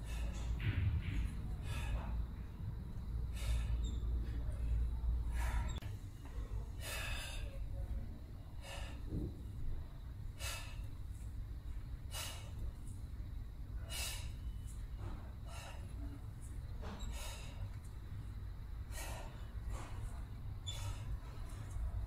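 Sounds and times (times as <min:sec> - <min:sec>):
man breathing forcefully: 0:00.0 - 0:05.9, 0:06.6 - 0:07.7, 0:08.4 - 0:09.3, 0:10.3 - 0:11.2, 0:12.0 - 0:12.8, 0:13.8 - 0:21.8.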